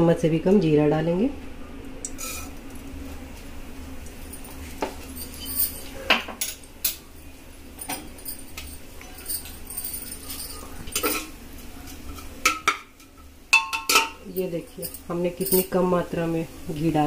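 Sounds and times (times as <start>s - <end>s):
steady low hum: 0.0s - 17.0s
seeds crackling in hot oil: 2.0s - 5.8s, 8.5s - 17.0s.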